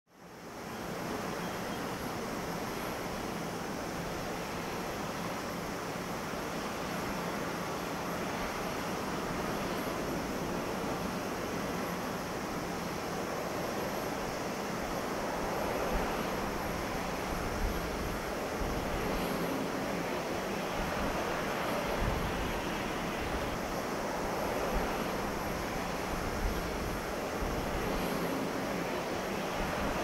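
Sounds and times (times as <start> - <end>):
turboprop engines droning: 0.4 - 30.0
wind rumbling on microphone: 6.4 - 30.0.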